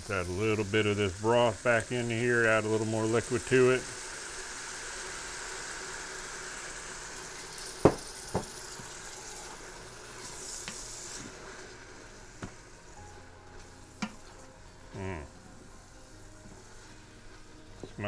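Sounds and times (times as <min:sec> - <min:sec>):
food sizzling in pot: 0:00.0 - 0:18.0.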